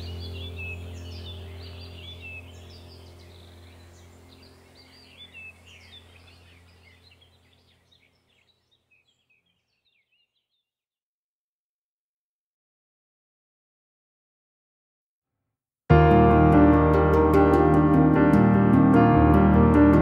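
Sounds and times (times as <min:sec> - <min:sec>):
low steady hum: 0:00.0 - 0:09.3
small birds chirping: 0:00.0 - 0:10.7.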